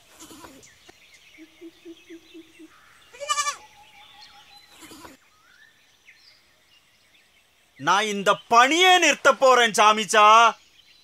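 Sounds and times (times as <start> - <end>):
goat bleating: 0.1 - 0.6, 3.1 - 3.7, 4.7 - 5.2.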